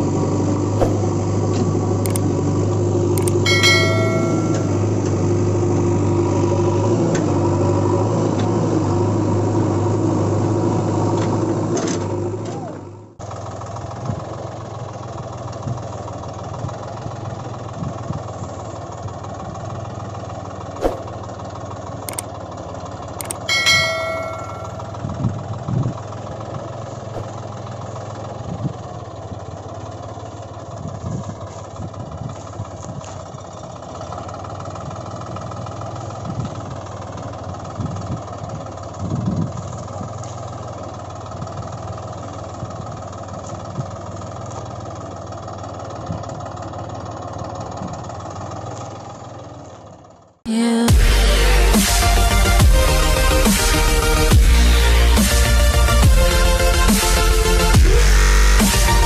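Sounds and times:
truck engine idling hum: 0:00.0 - 0:59.0
sharp clicks: 0:02.0 - 0:02.3, 0:03.2 - 0:03.4, 0:23.2 - 0:23.5
brief ringing chime: 0:03.2 - 0:05.0, 0:23.2 - 0:25.0.

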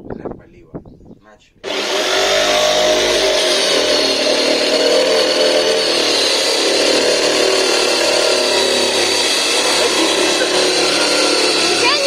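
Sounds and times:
electric jigsaw cutting plastic: 0:01.6 - 0:12.0.

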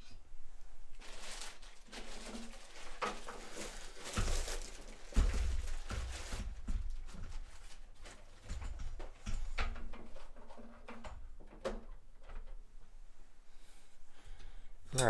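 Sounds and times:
plastic bag crinkling: 0:00.9 - 0:08.4.

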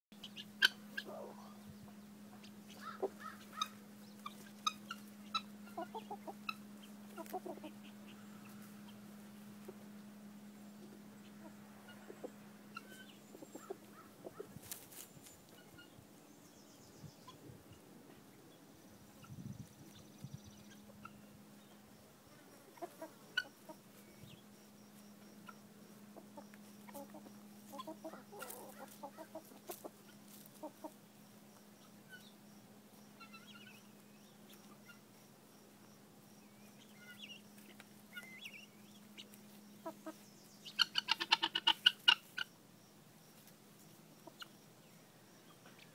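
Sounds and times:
guinea fowl harsh chatter: 0:00.2 - 0:09.0, 0:10.8 - 0:16.0, 0:22.7 - 0:24.4, 0:25.4 - 0:31.0, 0:33.2 - 0:34.0, 0:34.6 - 0:35.1, 0:36.8 - 0:42.5
birds pecking: 0:00.2 - 0:15.9, 0:19.0 - 0:42.6
guinea fowl clucking: 0:00.2 - 0:16.0, 0:19.1 - 0:21.7, 0:22.6 - 0:31.1, 0:33.1 - 0:35.2, 0:36.7 - 0:42.5, 0:43.4 - 0:44.6.

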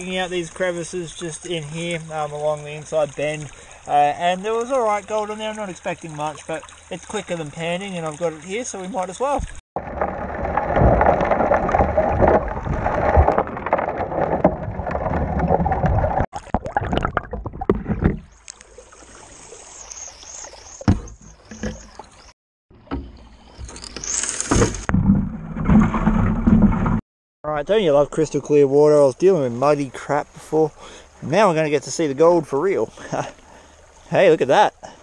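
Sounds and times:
water rushing through sluice box: 0:00.0 - 0:16.3.

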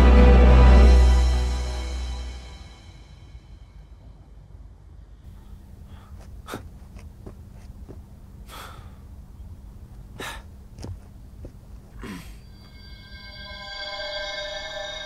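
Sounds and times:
low outdoor rumble: 0:01.9 - 0:12.5
man gasping: 0:05.4 - 0:06.8, 0:08.4 - 0:09.1, 0:10.2 - 0:10.5, 0:11.9 - 0:12.4.

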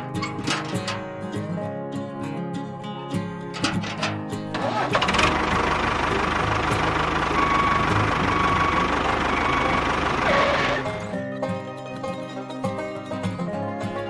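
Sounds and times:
plucked-string music: 0:00.0 - 0:14.0
tractor engine knocking: 0:03.6 - 0:11.1.

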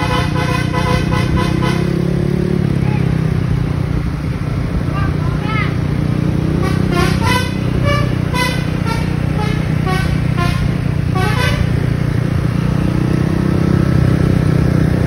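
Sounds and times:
musical horn playing a tune: 0:00.0 - 0:02.1, 0:06.6 - 0:11.8
motor scooter engine drone: 0:00.0 - 0:15.0.

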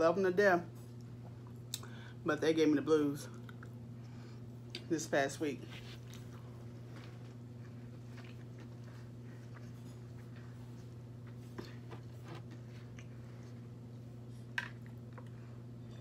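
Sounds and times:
low hum: 0:00.0 - 0:16.0
quiet chewing: 0:03.3 - 0:04.9, 0:05.8 - 0:15.6.

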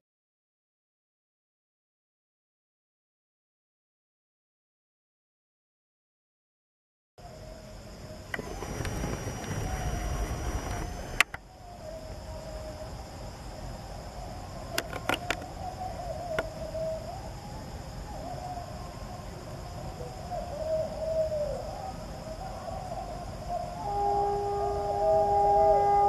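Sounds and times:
sharp clicks: 0:14.8 - 0:15.4
distant train horn: 0:23.8 - 0:26.0.

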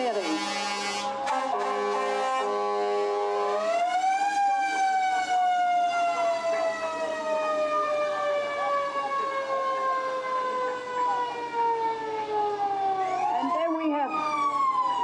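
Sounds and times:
held horn chord: 0:00.0 - 0:03.8
fire truck mechanical siren wailing: 0:00.0 - 0:15.0.

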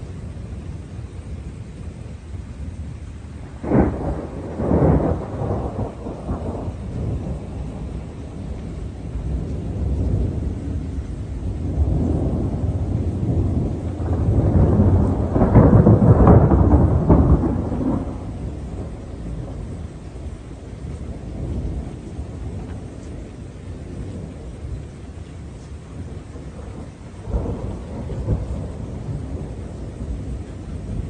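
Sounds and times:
thunder cracking and rumbling: 0:00.0 - 0:31.0.

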